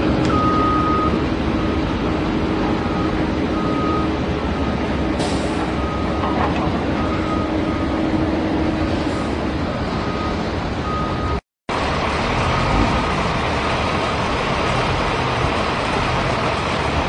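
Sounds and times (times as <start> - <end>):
bulldozer diesel engine running: 0.0 - 17.0
reversing alarm beeping: 0.2 - 1.8, 2.8 - 6.4, 7.0 - 8.1, 9.2 - 11.4.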